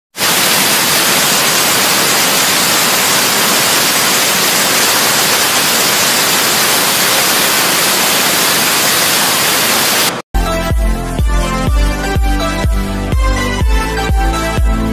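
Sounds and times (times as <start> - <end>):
loud static hiss: 0.2 - 10.2
electronic music with heavy beat: 10.4 - 14.9.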